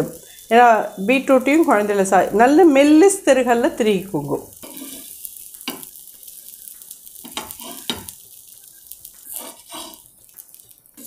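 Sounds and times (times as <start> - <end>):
dosas sizzling on a hot pan: 0.0 - 11.0
utensil scraping a pan: 4.6 - 5.9, 7.2 - 8.2, 9.2 - 11.0
utensil clicking against a pan: 5.4 - 6.0, 6.7 - 8.2.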